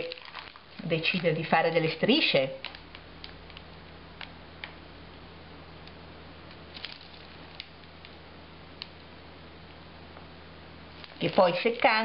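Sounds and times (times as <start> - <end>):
piping bag crinkling and ticking: 0.0 - 4.8, 5.8 - 9.0, 10.9 - 12.0
low steady hum: 0.0 - 12.0.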